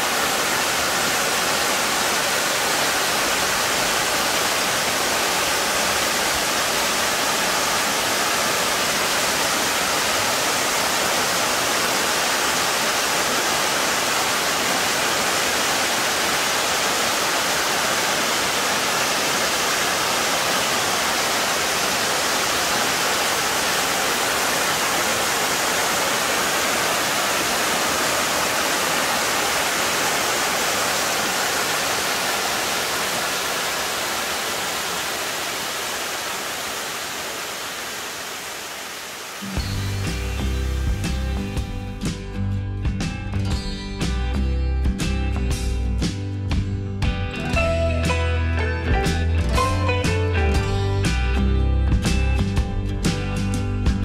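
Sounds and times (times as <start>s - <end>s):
water rushing: 0.0s - 41.8s.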